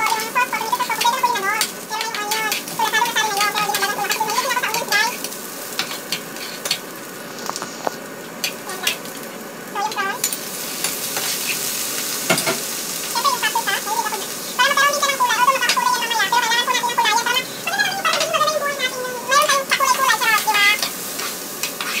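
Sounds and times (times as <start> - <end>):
onion sizzling in a pan: 0.0 - 22.0
spatula scraping a pan: 0.1 - 6.8, 10.2 - 11.7, 20.4 - 22.0.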